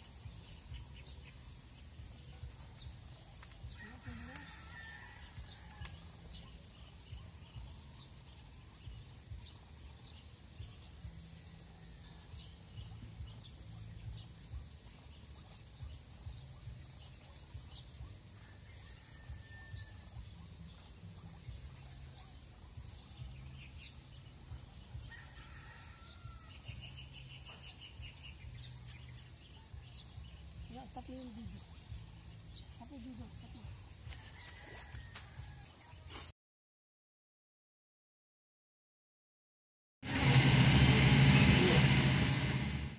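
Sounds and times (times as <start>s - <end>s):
low rumble: 40.0s - 42.9s
steady high-pitched whine: 40.0s - 42.9s.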